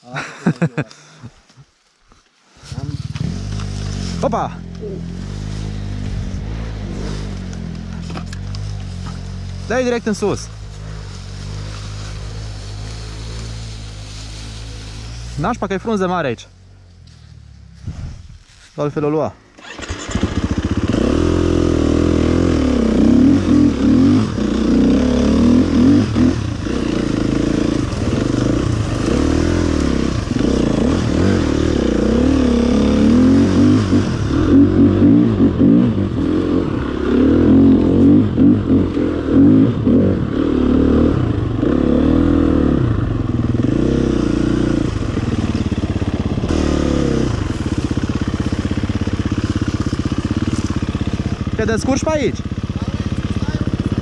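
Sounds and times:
motorcycle engine revving: 0:02.6 - 0:18.6, 0:19.6 - 0:54.0.

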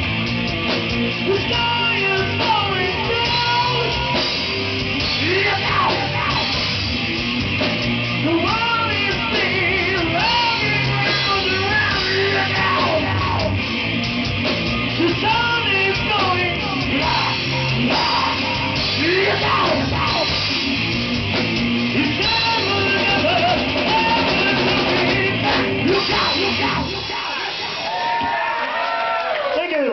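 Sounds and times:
distorted electric guitars: 0:00.0 - 0:28.8
drum kit: 0:00.0 - 0:28.9
man singing into a microphone: 0:01.2 - 0:04.2, 0:05.1 - 0:06.5, 0:08.2 - 0:13.5, 0:15.0 - 0:18.4, 0:19.0 - 0:20.4, 0:22.0 - 0:27.6.

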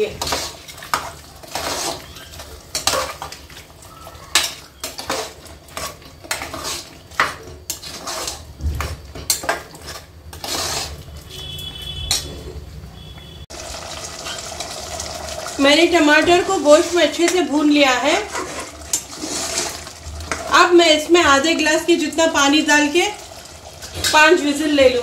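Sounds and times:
metal spoon scraping pot: 0:00.0 - 0:03.4, 0:04.3 - 0:12.7, 0:16.2 - 0:20.4
meat frying: 0:00.0 - 0:12.1, 0:13.5 - 0:25.0.

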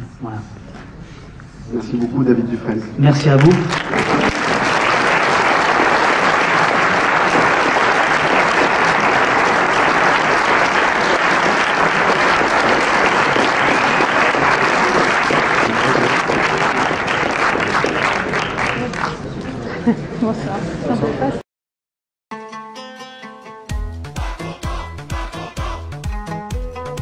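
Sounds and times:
audience applauding: 0:03.4 - 0:19.6.

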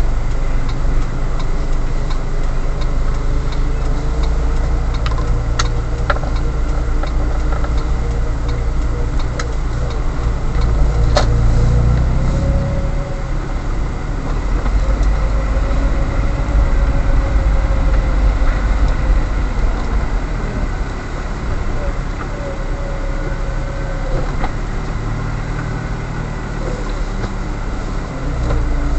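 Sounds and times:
car engine and road rumble: 0:00.0 - 0:28.9
faint ticks: 0:00.1 - 0:28.9
faint wavering whine: 0:05.3 - 0:25.4.

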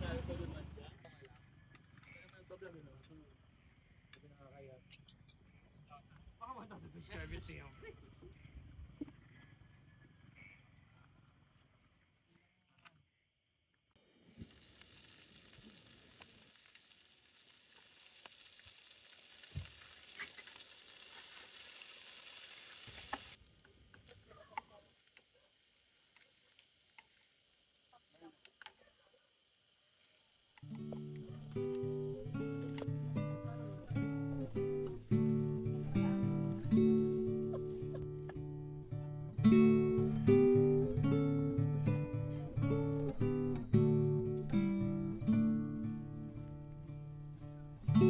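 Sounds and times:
crickets chirping: 0:00.0 - 0:48.0
shrimp sizzling in oil: 0:14.0 - 0:38.0.

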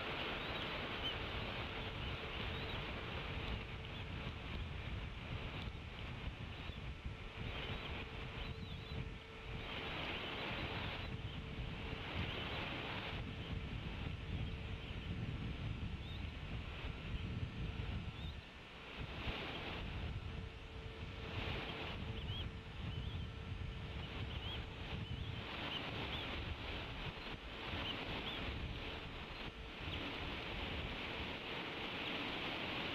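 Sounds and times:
eagle hatchlings peeping: 0:00.0 - 0:15.3, 0:21.4 - 0:30.9
birds chirping: 0:00.0 - 0:18.6, 0:21.2 - 0:32.4
wind rumbling on microphone: 0:00.0 - 0:32.9.

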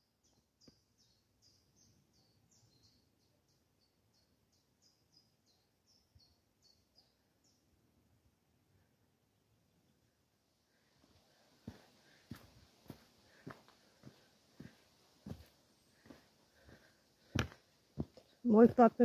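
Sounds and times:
bird chirping: 0:00.0 - 0:07.8.

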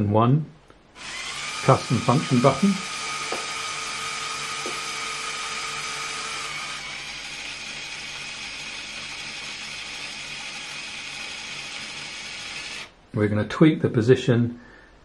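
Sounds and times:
electric motors whirring: 0:01.0 - 0:12.9.

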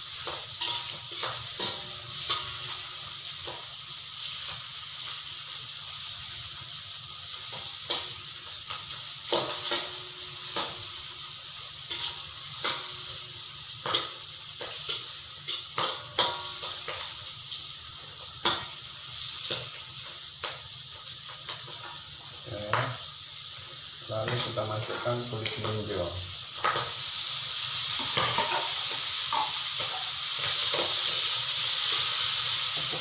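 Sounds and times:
squid sizzling in hot oil: 0:00.0 - 0:33.0
metal spatula scraping a pan: 0:00.3 - 0:03.6, 0:11.9 - 0:13.2, 0:27.9 - 0:33.0.

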